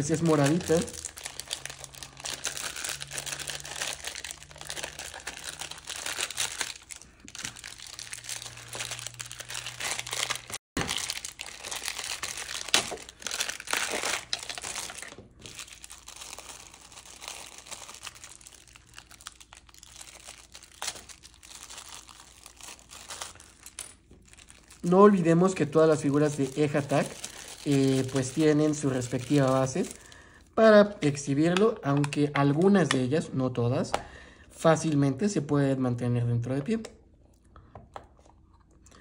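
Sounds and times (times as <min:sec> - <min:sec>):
plastic packaging crinkling: 0:00.0 - 0:30.2.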